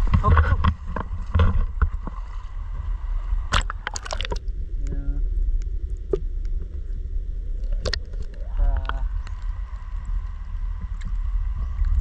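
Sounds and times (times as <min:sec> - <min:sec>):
muffled underwater rumble: 0:00.0 - 0:12.0
faint underwater clicks: 0:03.5 - 0:12.0.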